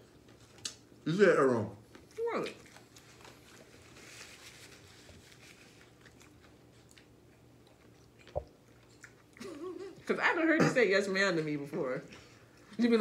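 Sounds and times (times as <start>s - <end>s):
chewing crispy food: 0.0s - 10.1s.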